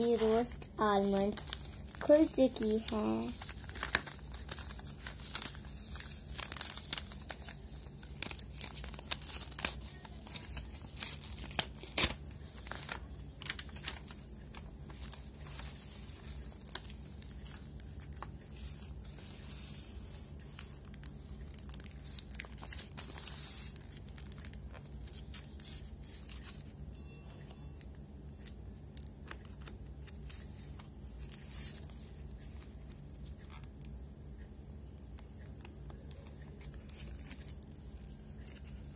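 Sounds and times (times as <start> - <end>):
foil wrapper crinkling and tearing: 1.0 - 26.7.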